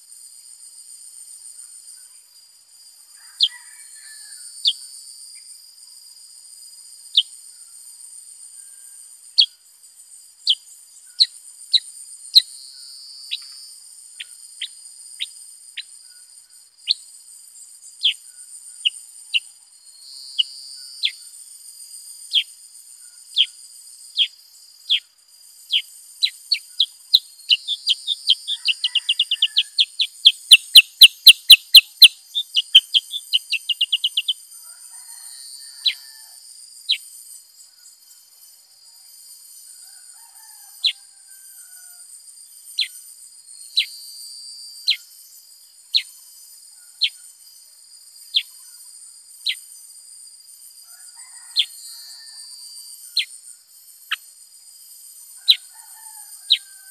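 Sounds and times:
high-pitched insect drone: 0.0 - 56.9
bird chirping: 10.4 - 21.4, 22.2 - 34.5, 42.5 - 45.2, 45.9 - 47.6, 48.2 - 49.8.

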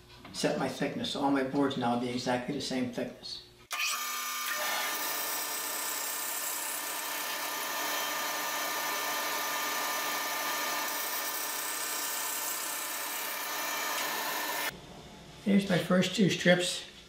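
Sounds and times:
bandsaw cutting wood: 3.7 - 14.7.

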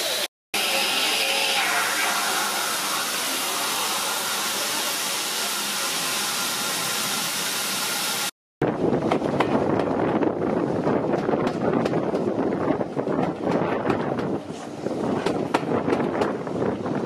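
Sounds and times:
steam locomotive hissing steam: 0.0 - 8.3.

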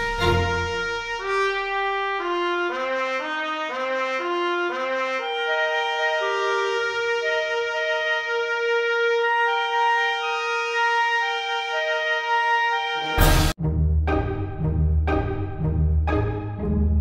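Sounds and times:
instrumental background music: 0.0 - 17.0.

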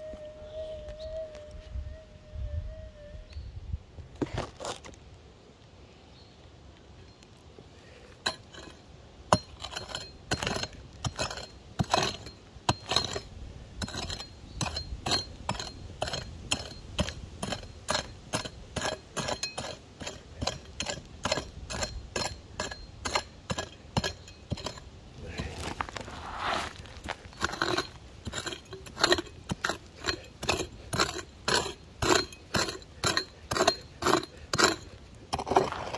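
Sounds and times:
pick chopping into dry soil: 8.2 - 35.9.

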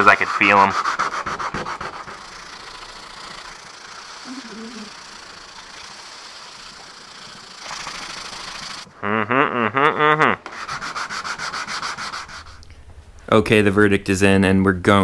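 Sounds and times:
sandpaper rubbing: 0.0 - 8.9, 10.4 - 12.6.

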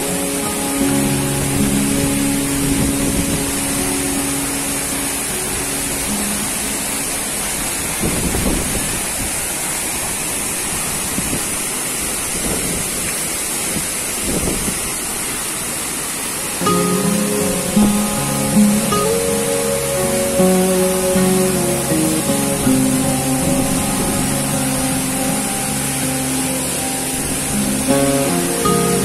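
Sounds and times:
background music: 0.0 - 7.6, 16.6 - 29.0
waterfall rushing: 0.0 - 29.0.

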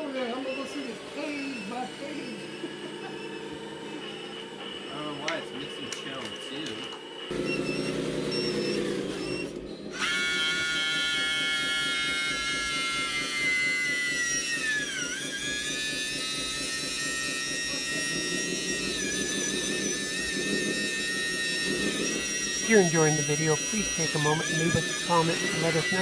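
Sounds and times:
hydraulic pump whining: 0.0 - 26.0
low fast pulsing: 7.2 - 26.0.

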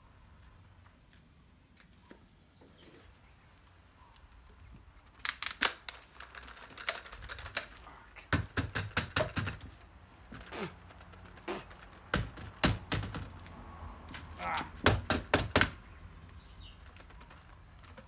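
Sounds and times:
plastic clicks and knocks: 8.3 - 13.5.

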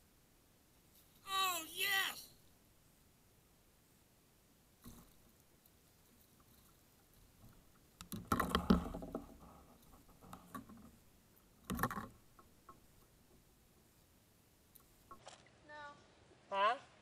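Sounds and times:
fish flapping and knocking: 7.4 - 11.0, 11.6 - 12.8.

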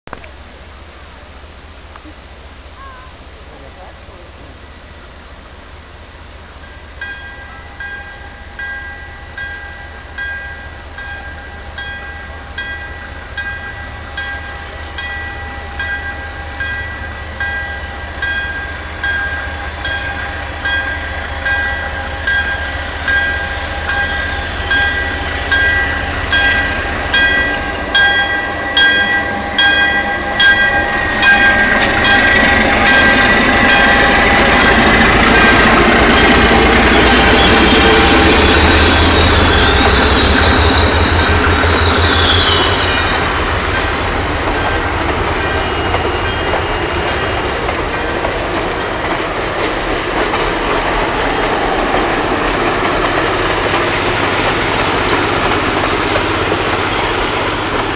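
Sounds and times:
locomotive bell ringing: 6.6 - 49.0
train wheels clicking: 7.0 - 57.9.

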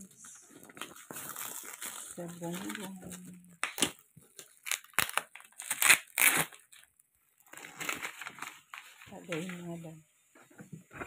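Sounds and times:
bubble wrap crinkling: 0.0 - 10.0
scissors cutting plastic: 2.5 - 6.8.

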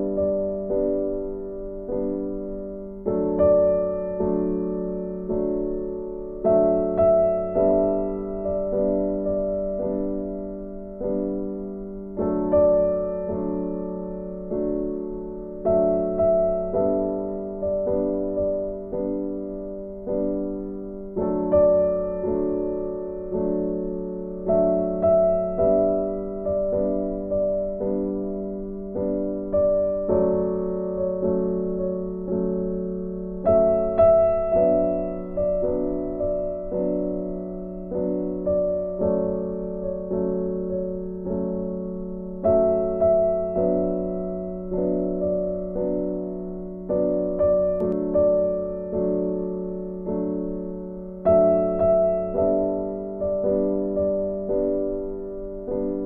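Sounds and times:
slow piano chords: 0.0 - 56.0.

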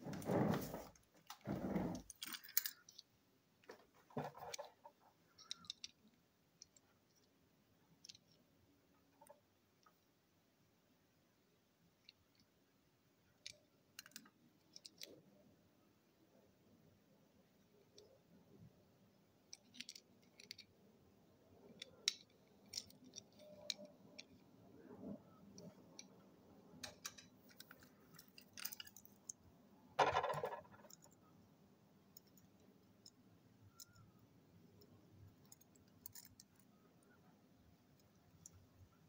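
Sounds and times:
rustling noise: 0.0 - 2.4.

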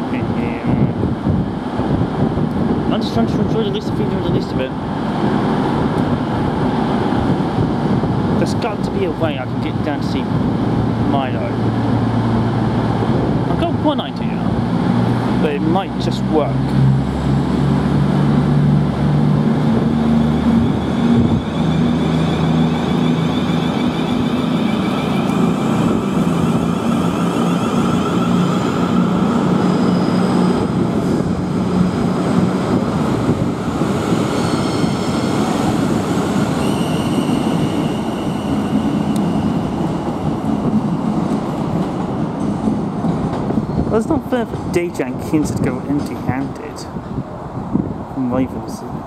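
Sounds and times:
train running rumble: 0.0 - 49.0
train traction motors whining: 17.0 - 40.5.

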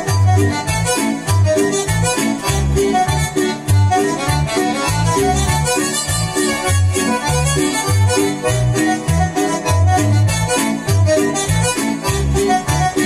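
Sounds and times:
folk music backing track: 0.0 - 13.0.

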